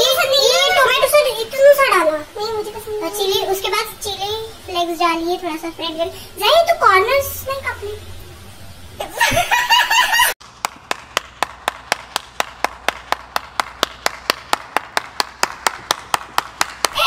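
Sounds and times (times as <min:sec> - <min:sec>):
person clapping slowly: 0:10.5 - 0:17.0.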